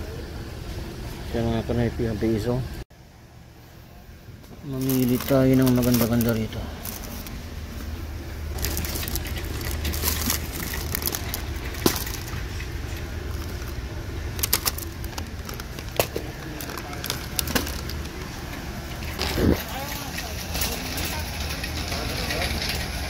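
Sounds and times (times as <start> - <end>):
store ambience hum: 0.0 - 23.0
plastic sleeve crinkling: 4.6 - 18.5.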